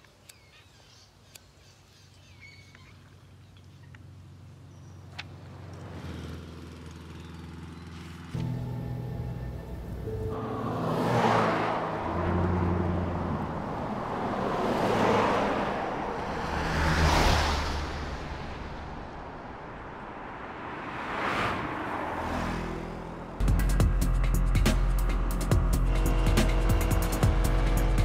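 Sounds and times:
cars passing on road: 0:03.1 - 0:28.0.

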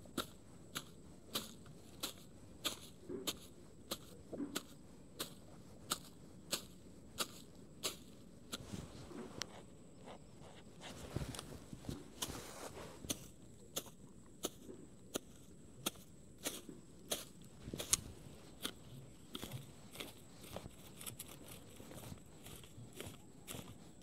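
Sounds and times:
machete chopping grass: 0:00.1 - 0:08.2, 0:13.1 - 0:21.4.

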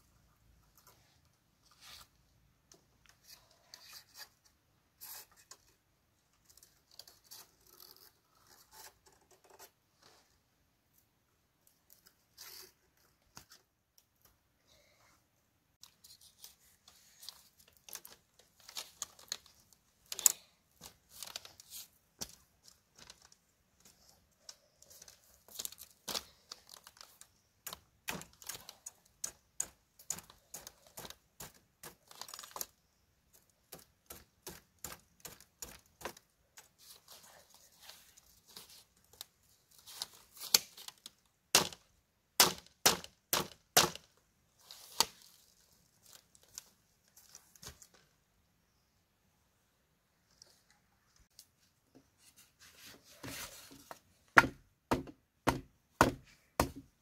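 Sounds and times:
bamboo clicking and snapping: 0:24.4 - 0:36.2, 0:40.0 - 0:44.2.

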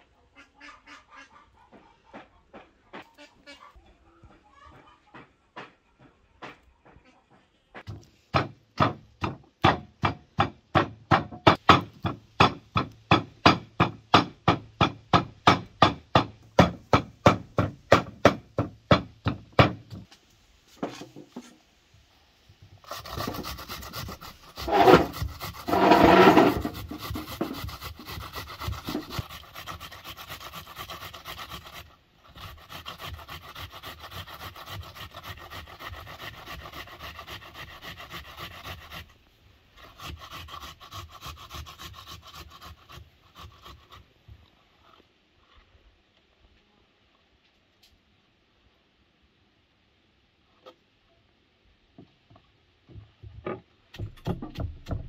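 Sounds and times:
onion grated on metal grater: 0:22.8 - 0:39.1.

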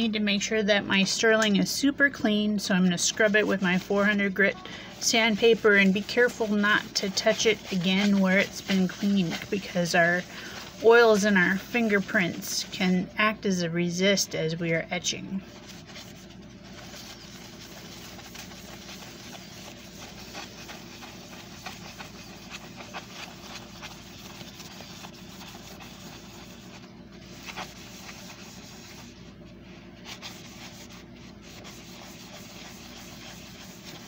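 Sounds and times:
low steady hum: 0:00.0 - 0:34.0
sandpaper rubbing on metal: 0:05.0 - 0:12.7, 0:15.5 - 0:29.2, 0:30.0 - 0:34.0.

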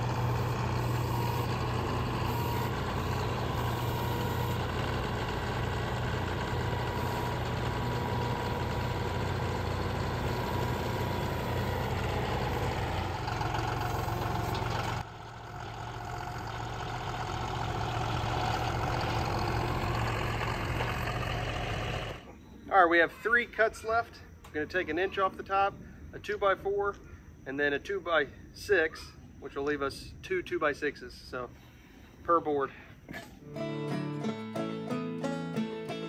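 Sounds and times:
tractor diesel engine running: 0:00.0 - 0:22.3.

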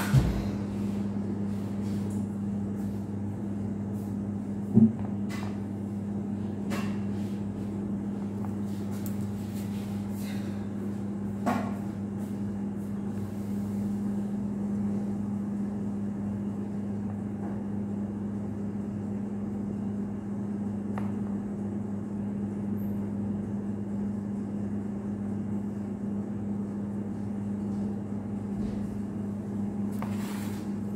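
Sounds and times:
kitchen machinery hum: 0:00.0 - 0:30.9.

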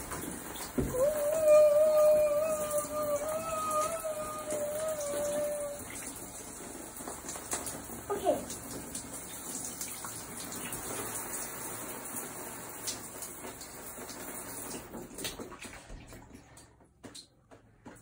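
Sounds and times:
shower water spray hissing: 0:00.0 - 0:14.8.

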